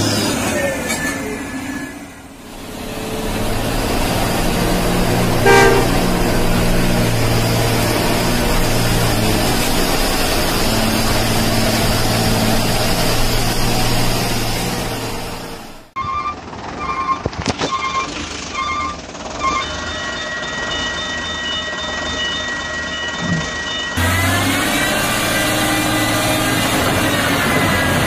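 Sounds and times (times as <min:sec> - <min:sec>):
truck engine running: 0:02.1 - 0:28.0
short horn toot: 0:05.4 - 0:06.2.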